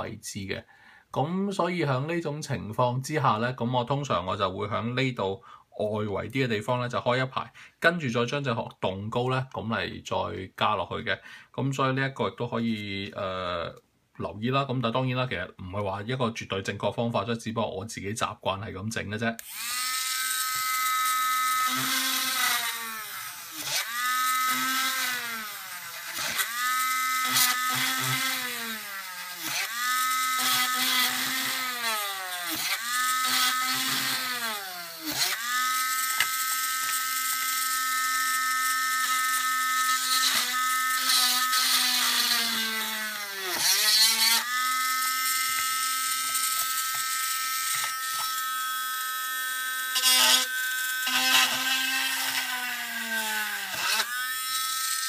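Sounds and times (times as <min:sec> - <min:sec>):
electric mini drill whining: 0:19.4 - 0:55.0.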